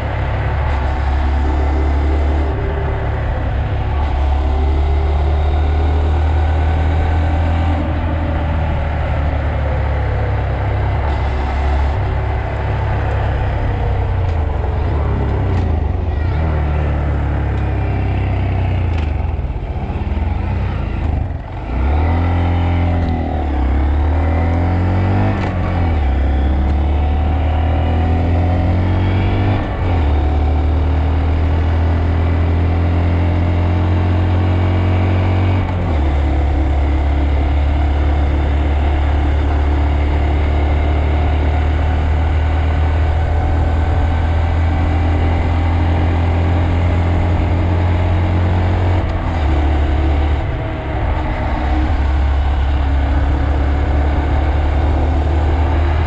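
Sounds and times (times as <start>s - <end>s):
motorcycle engine cruising: 0.0s - 56.0s.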